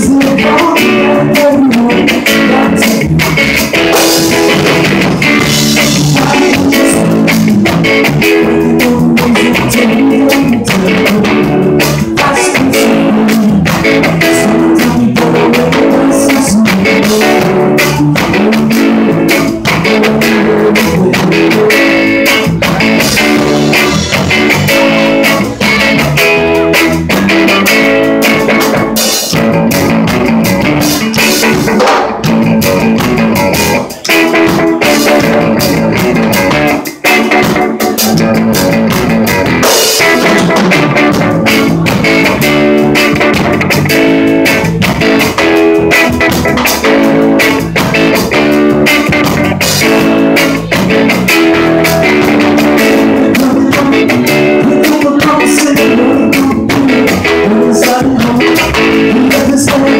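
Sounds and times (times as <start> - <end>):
drum kit: 0.0 - 59.9
electric guitar: 0.0 - 59.9.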